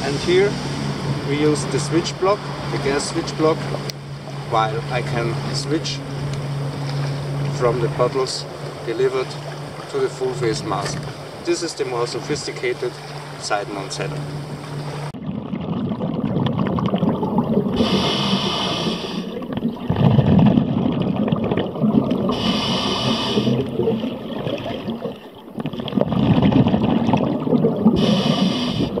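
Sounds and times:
gurgling exhaled bubbles: 15.0 - 29.0
regulator hissing inhalations: 17.8 - 19.4, 22.3 - 23.6, 28.0 - 29.0.

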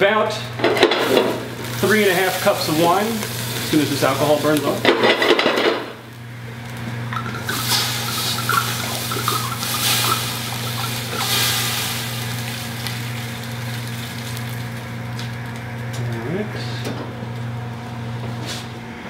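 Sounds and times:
wine glugging from a bottle: 7.1 - 11.4.

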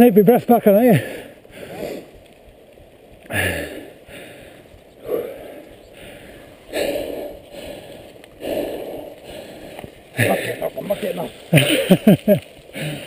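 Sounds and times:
person breathing heavily: 0.9 - 2.2, 3.3 - 11.0, 12.6 - 13.0.

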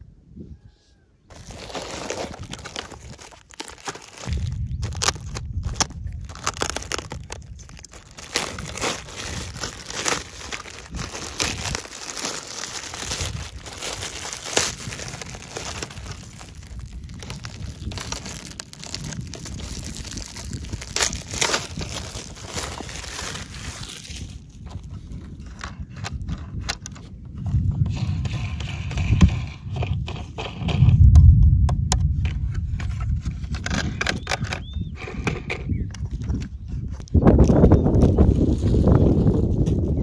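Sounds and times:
plastic bag crinkling and tearing: 1.3 - 25.8, 38.0 - 40.0.

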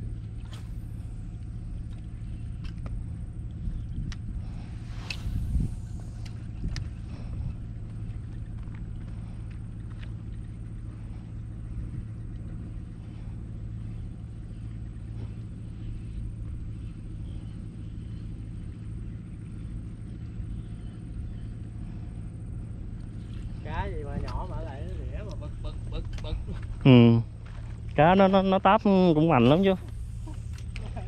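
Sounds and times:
low motor hum: 0.0 - 31.0
faint hiss: 4.5 - 6.8.

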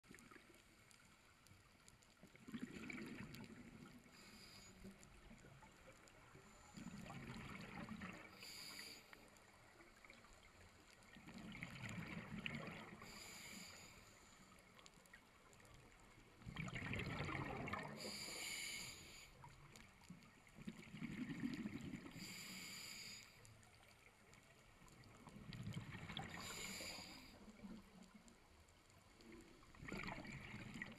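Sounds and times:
bubbling underwater exhale: 2.4 - 4.6, 6.8 - 8.9, 11.3 - 13.6, 16.4 - 18.9, 20.7 - 22.7
regulator hissing inhale: 4.0 - 5.1, 8.2 - 9.4, 13.0 - 14.7, 18.0 - 19.5, 22.1 - 23.5, 26.2 - 27.5.

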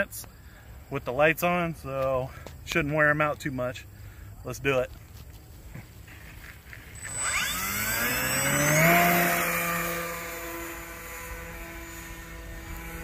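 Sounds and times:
model plane motor whine: 6.8 - 13.0.

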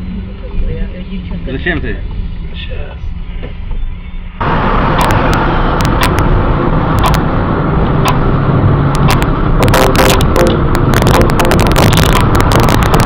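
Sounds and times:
car road and engine rumble: 0.0 - 13.0
sharp clicks and rattles: 4.7 - 13.0.

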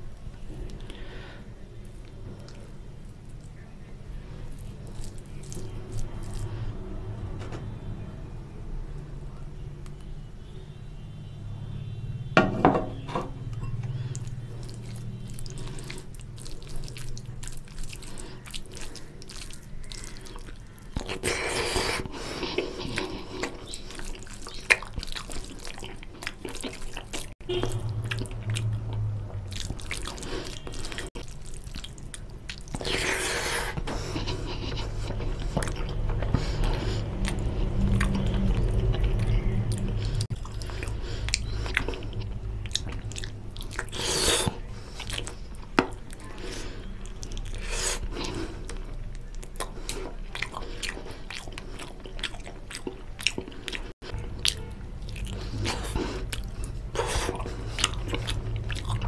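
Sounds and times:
chewing: 4.4 - 6.6, 13.5 - 59.0
fingers squishing wet food: 4.6 - 6.5, 14.0 - 46.4.

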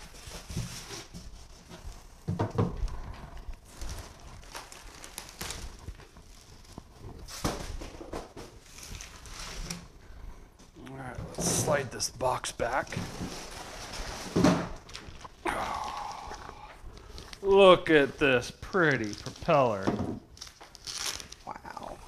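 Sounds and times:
plastic rustling: 0.0 - 10.1, 11.4 - 22.0
cardboard scraping: 12.8 - 15.0.

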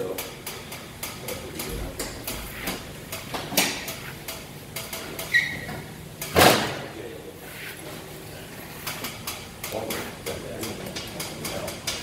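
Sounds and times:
brief squeak: 5.3 - 5.7
loud metal clunk: 6.3 - 6.9.

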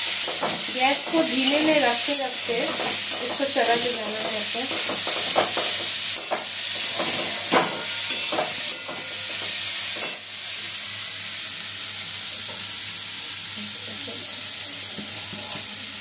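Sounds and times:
food sizzling in oil: 0.0 - 16.0
metal spatula scraping pan: 0.1 - 10.2.

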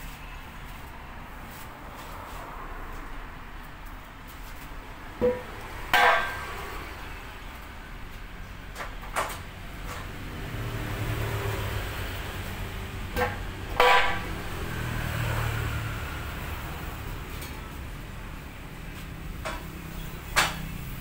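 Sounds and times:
steel knocks: 13.2 - 14.3.

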